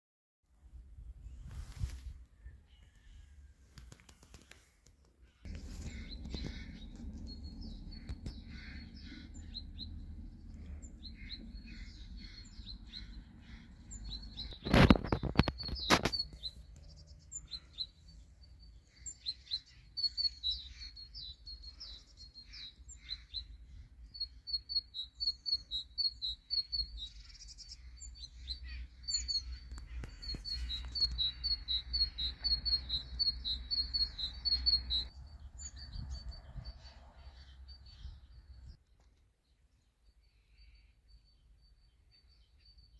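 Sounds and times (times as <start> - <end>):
small birds chirping: 1.2 - 42.9
steady low rumble: 5.5 - 14.4.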